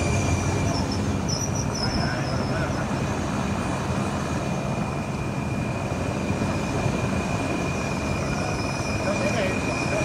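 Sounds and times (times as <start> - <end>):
constant high whine: 0.0 - 10.0
train wheels rumbling on rails: 0.0 - 10.0.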